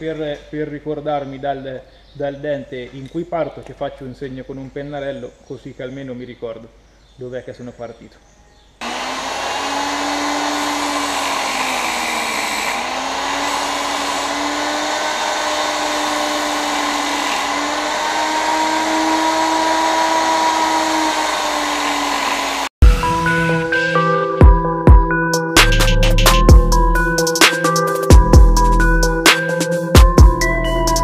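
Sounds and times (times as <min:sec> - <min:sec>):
chain sharpener grinding: 0:08.8 - 0:22.7
motor hum: 0:08.8 - 0:22.7
electronic music: 0:22.8 - 0:31.0.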